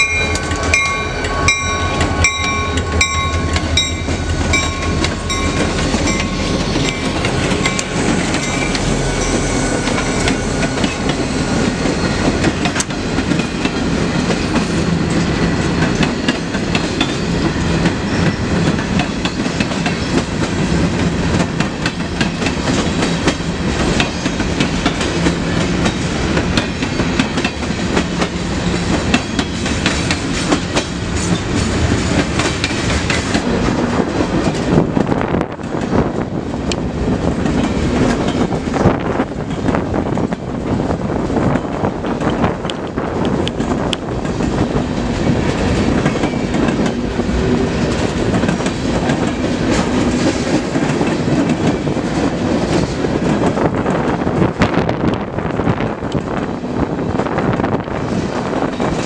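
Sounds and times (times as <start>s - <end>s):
diesel locomotives passing: 0.0s - 59.0s
freight cars clickety-clack: 9.8s - 59.0s.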